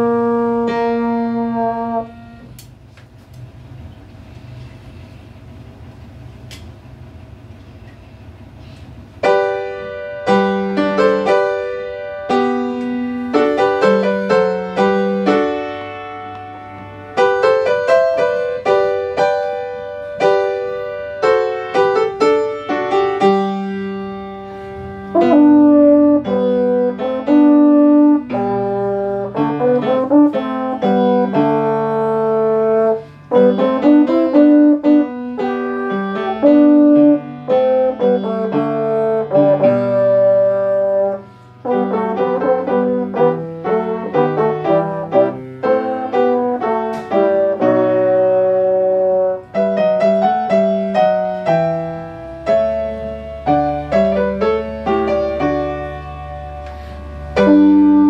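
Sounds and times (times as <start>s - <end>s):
piano chords: 0.0s - 2.8s, 9.0s - 58.0s.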